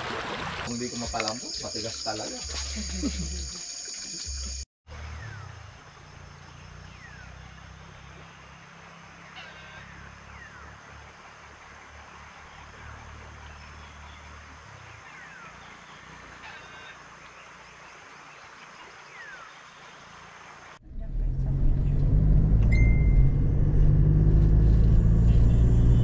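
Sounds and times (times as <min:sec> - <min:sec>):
car driving rumble from inside: 0:20.8 - 0:26.0.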